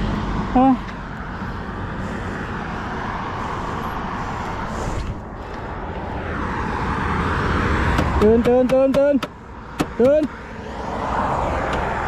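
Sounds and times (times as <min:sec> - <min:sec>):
motorcycle tyre noise: 0:00.0 - 0:12.0
wind rushing over microphone: 0:01.2 - 0:08.5.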